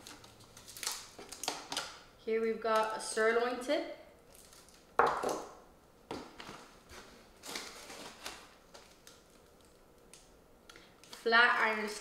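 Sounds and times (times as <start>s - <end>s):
plastic rustling: 0.0s - 2.0s, 4.3s - 5.4s, 6.1s - 12.0s
meat packs knocking on countertop: 5.0s - 5.5s.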